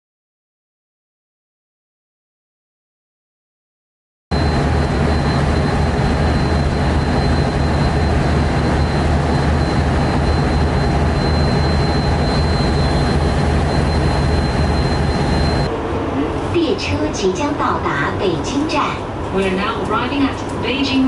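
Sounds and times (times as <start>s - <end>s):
thin high whine: 4.3s - 16.8s
diesel engine drone: 4.3s - 18.4s.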